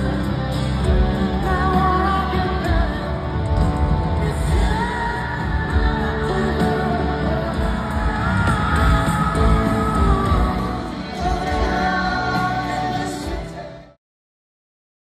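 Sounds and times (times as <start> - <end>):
heavy bass: 0.0 - 13.8
live rock band playing: 0.0 - 13.9
crowd yelling: 3.5 - 12.8.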